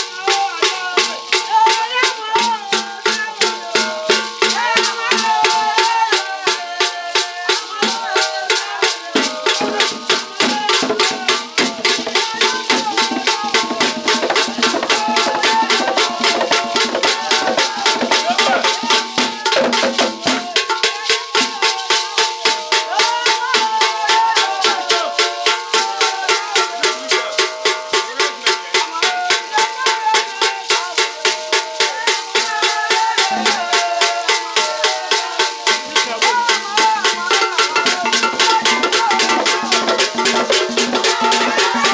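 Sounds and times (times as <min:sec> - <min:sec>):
hand drums: 0:00.0 - 0:41.9
repeating percussion beat: 0:00.0 - 0:41.9
voices singing: 0:00.0 - 0:41.9.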